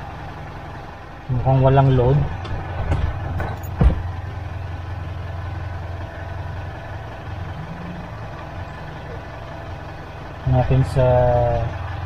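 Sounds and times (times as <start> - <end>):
car engine idling: 0.0 - 12.0.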